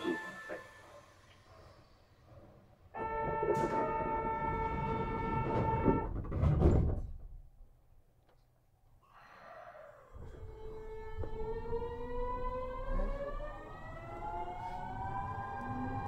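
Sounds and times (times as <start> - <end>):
low rumble of train wheels: 1.3 - 7.1, 10.1 - 16.0
train motors whining: 10.1 - 16.0.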